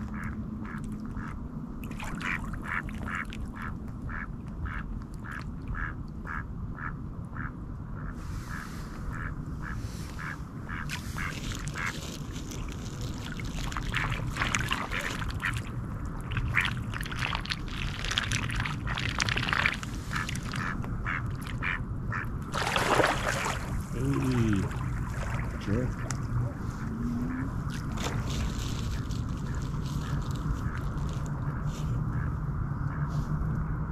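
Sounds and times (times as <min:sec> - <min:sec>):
ducks quacking: 0:02.3 - 0:12.0, 0:20.1 - 0:22.3.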